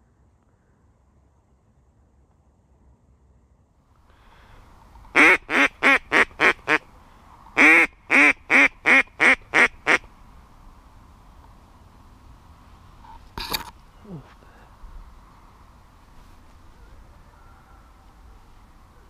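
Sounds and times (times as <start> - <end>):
duck quacking: 5.2 - 6.8, 7.6 - 10.0.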